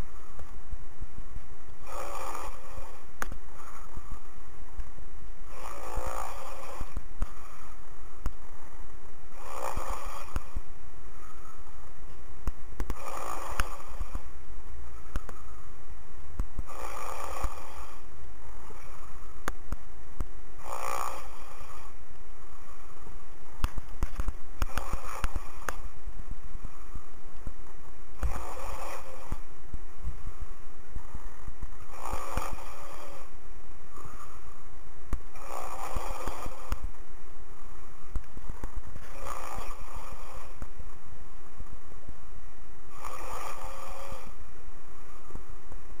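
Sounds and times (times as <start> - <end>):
man snoring over phone: 1.8 - 4.3, 5.4 - 7.8, 9.3 - 11.4, 12.8 - 14.3, 16.6 - 19.4, 20.6 - 26.0, 28.1 - 29.5, 31.0 - 34.5, 35.3 - 36.9, 38.5 - 40.8, 42.9 - 44.5.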